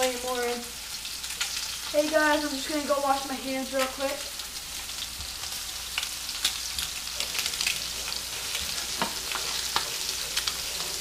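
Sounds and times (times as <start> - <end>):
fish frying in hot oil: 0.0 - 11.0
oil popping and crackling: 0.0 - 11.0.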